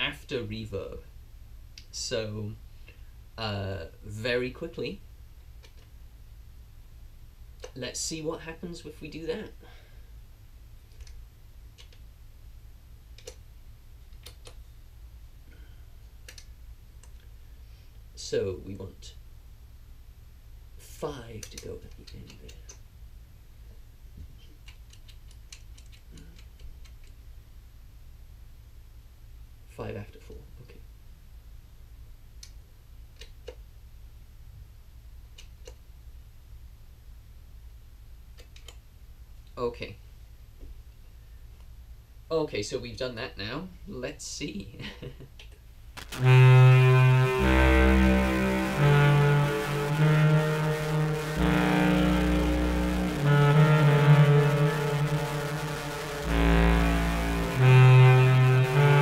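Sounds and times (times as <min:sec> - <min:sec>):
low electrical hum: 0:00.0 - 0:59.0
low steady hum: 0:46.0 - 0:59.0.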